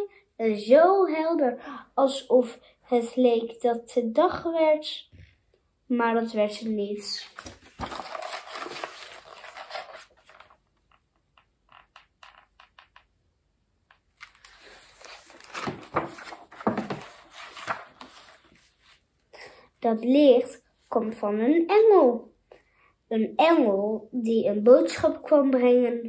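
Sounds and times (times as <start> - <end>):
book and card rustling: 6.6 - 11.2, 14.0 - 19.1.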